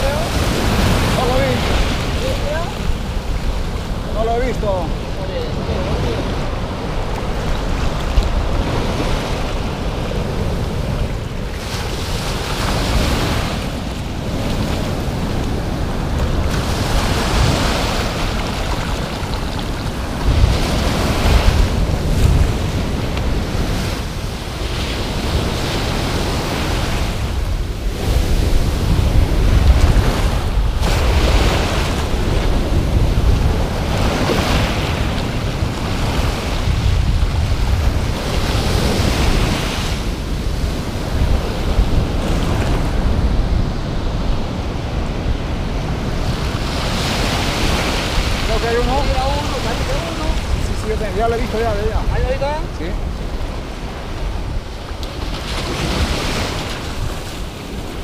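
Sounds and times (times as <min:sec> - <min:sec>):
waves surging and hissing: 0:00.0 - 0:58.0
wind rumbling on microphone: 0:00.0 - 0:58.0.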